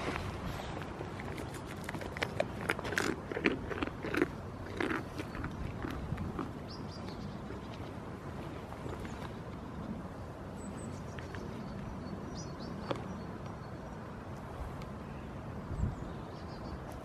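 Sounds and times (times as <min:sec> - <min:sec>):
goat chewing crunchy bites: 0:00.0 - 0:09.4.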